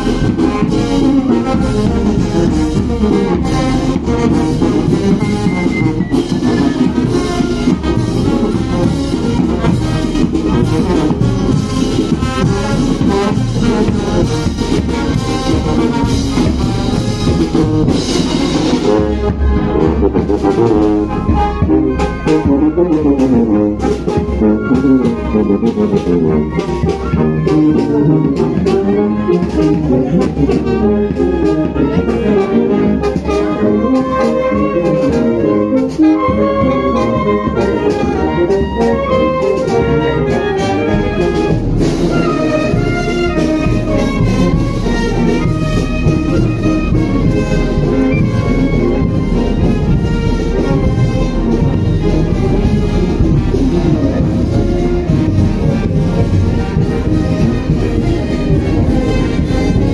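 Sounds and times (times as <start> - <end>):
bass drum with cymbal: 0.0 - 24.9, 40.8 - 59.9
snare drum: 0.0 - 32.0, 39.2 - 59.9
marching brass band playing: 0.0 - 59.9.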